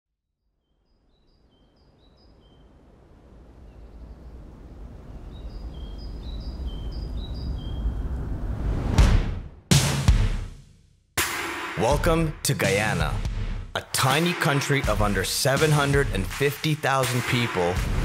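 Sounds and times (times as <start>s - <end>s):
bird chirping: 0.6s - 8.2s
deep rumble: 3.2s - 9.6s.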